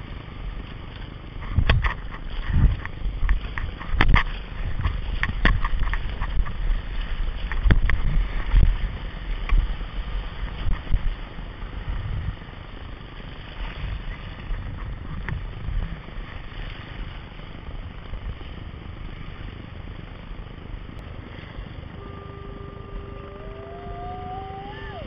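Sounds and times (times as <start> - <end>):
wind buffeting microphone: 0.0 - 25.0
thin steady tone: 21.3 - 25.0
rising and falling pitch sound: 21.9 - 25.0.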